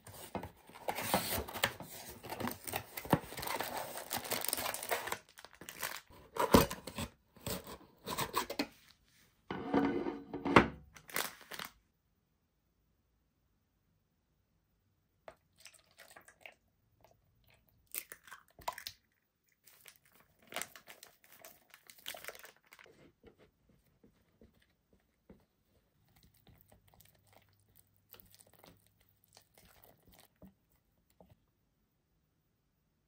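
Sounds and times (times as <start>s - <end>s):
plastic packet crinkling: 0.9s - 6.1s, 10.9s - 11.8s, 19.7s - 22.9s
whisk stirring batter: 22.8s - 31.4s.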